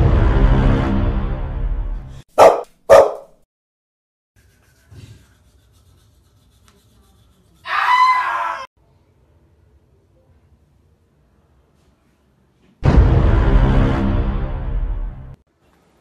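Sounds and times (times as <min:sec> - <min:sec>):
music: 0:00.0 - 0:02.2, 0:12.8 - 0:15.4
dog barking: 0:02.4 - 0:03.4
high-pitched cry: 0:07.6 - 0:08.7.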